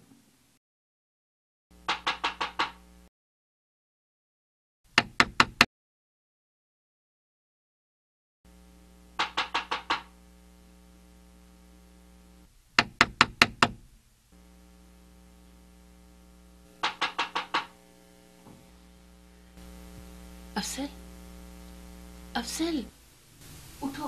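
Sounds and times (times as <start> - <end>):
knocking on a door: 5.0 - 5.7, 12.8 - 13.8, 16.8 - 17.7.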